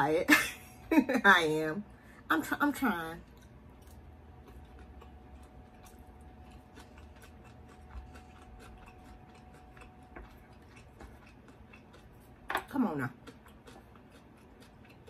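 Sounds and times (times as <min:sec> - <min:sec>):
faint high hum: 0:00.0 - 0:15.0
mouth chewing clicks: 0:03.3 - 0:12.4.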